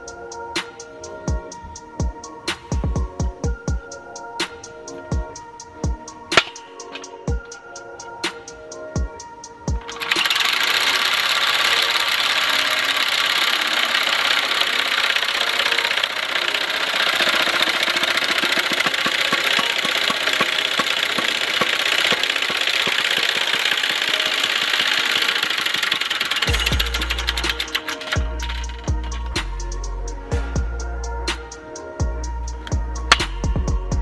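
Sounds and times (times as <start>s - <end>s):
log splitter motor running: 9.8s - 29.4s.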